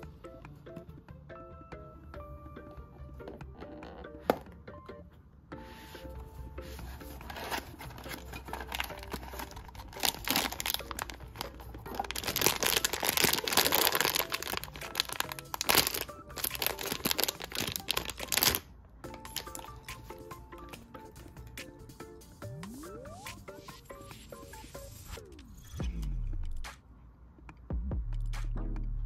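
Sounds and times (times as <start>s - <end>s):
plastic bag crinkling and tearing: 7.2s - 18.6s.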